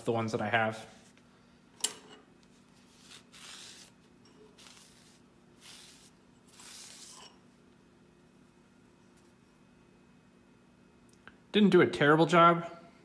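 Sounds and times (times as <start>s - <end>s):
rag swishing over metal chips: 2.7s - 7.5s.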